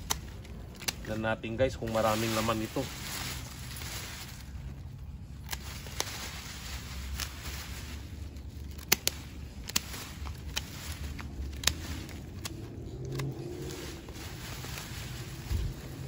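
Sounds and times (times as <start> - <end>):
sharp clicks and crackles: 0.0 - 1.2, 8.6 - 13.5
hands rummaging through soil: 0.0 - 16.0.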